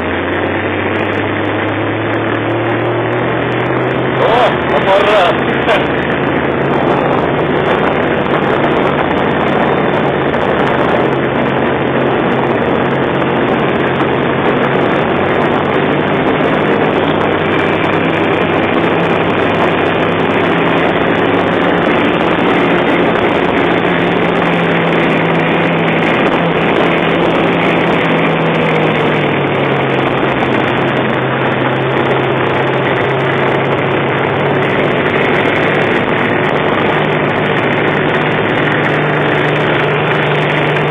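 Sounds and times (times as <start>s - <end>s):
snow vehicle engine running: 0.0s - 40.9s.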